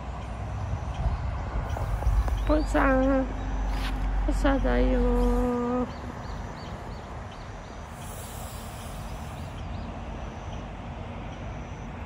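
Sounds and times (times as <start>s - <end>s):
low rumble and hiss: 0.0s - 12.0s
brief high hiss: 7.9s - 9.6s.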